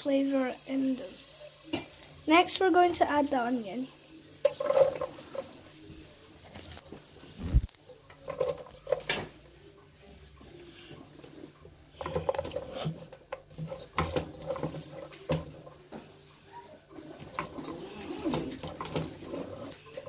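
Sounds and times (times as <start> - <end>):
utensil knocking and scraping pot: 4.4 - 5.6, 11.1 - 16.1, 17.0 - 20.0.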